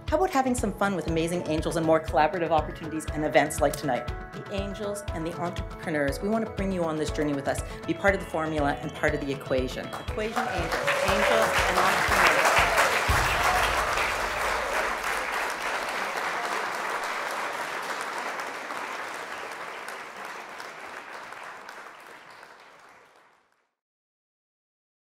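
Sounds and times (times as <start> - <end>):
background music: 0.0 - 21.8
audience applauding: 9.9 - 23.6.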